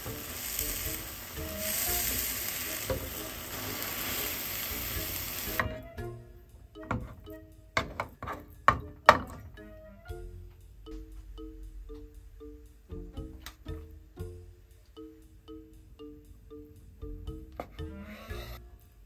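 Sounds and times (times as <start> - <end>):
egg sizzling in a pan: 0.0 - 5.9
soft background music: 0.0 - 19.0
sharp clicks and knocks: 6.8 - 9.6.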